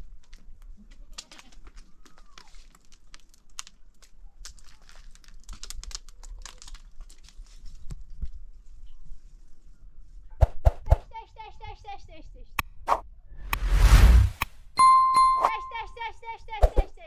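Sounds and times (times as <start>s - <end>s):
sharp clicks and crackles: 1.1s - 7.5s.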